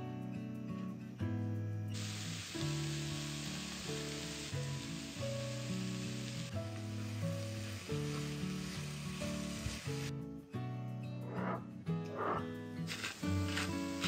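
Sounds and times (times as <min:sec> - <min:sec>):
background music: 0:00.0 - 0:14.0
food sizzling in pan: 0:01.9 - 0:10.1, 0:12.8 - 0:14.0.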